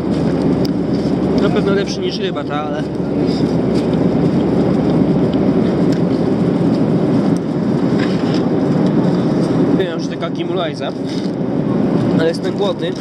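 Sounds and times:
airliner cabin noise: 0.0s - 13.0s.

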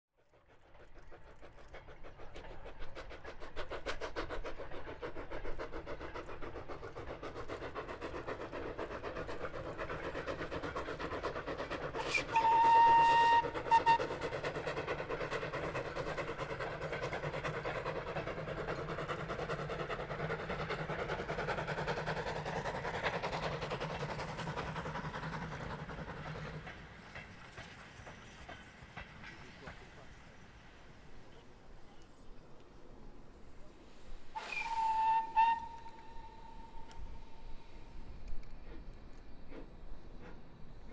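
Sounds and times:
steam locomotive exhaust beats: 0.2s - 40.9s
steam whistle blasts: 12.1s - 14.1s, 34.4s - 37.2s.

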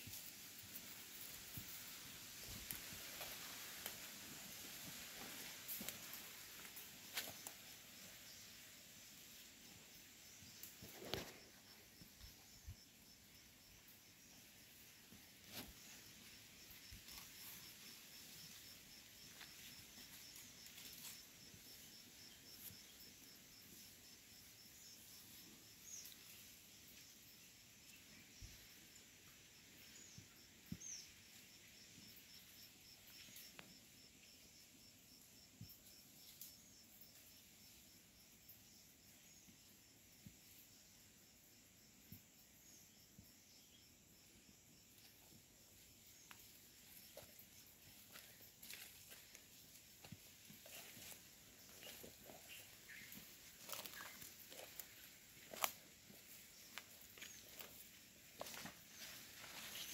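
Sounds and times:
footsteps in undergrowth: 0.0s - 8.4s, 15.1s - 22.8s, 45.8s - 59.9s
insect chirping: 0.0s - 59.9s.

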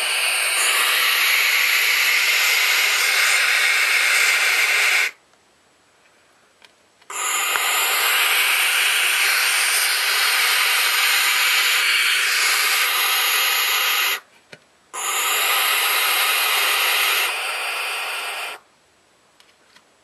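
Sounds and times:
owl chicks hissing: 0.0s - 5.2s, 7.1s - 14.3s, 15.0s - 18.7s.

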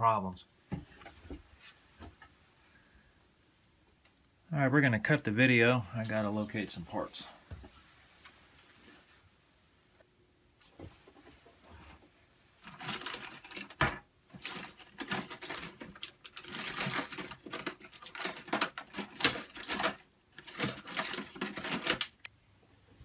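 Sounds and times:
rummaging through parts clattering: 12.6s - 22.3s.

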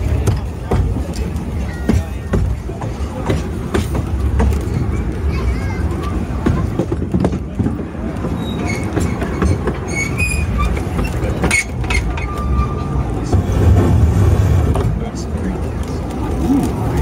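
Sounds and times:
railway carriage rumbling: 0.0s - 17.0s
clicks from rail joints: 5.9s - 14.0s
high wheel squeals: 8.3s - 13.2s.

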